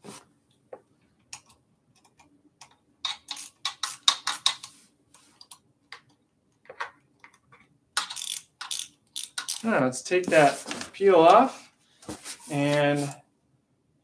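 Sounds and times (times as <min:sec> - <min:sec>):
small parts clicking: 0:08.0 - 0:09.7.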